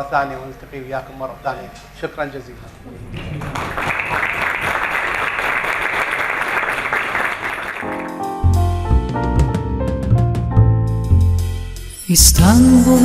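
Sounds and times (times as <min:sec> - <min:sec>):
audience applauding: 0:03.0 - 0:08.3
music with heavy bass: 0:08.2 - 0:13.0.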